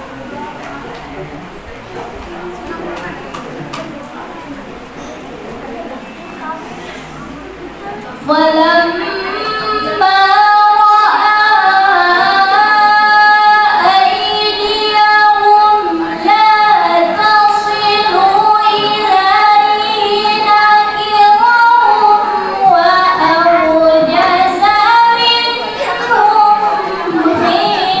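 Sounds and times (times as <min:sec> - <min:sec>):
woman reciting melodically: 0:08.1 - 0:28.0.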